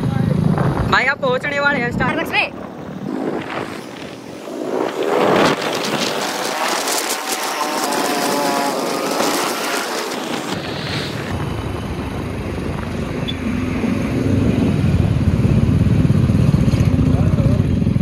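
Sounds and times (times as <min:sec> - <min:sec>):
wind rushing over microphone: 0:00.0 - 0:18.0
motorcycle engine exhaust note: 0:04.7 - 0:10.7.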